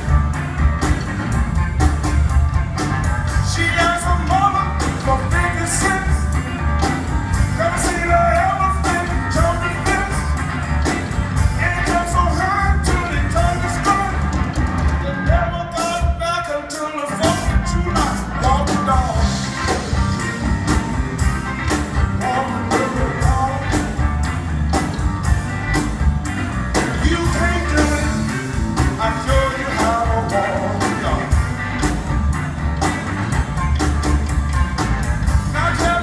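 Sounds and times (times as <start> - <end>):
steady drum beat: 0.0 - 16.4, 17.1 - 36.0
bass guitar: 0.0 - 36.0
electric guitar: 0.0 - 36.0
man singing: 3.4 - 6.4, 7.5 - 10.4, 11.5 - 14.3, 15.0 - 19.8, 22.0 - 24.0, 26.8 - 31.4, 35.4 - 36.0.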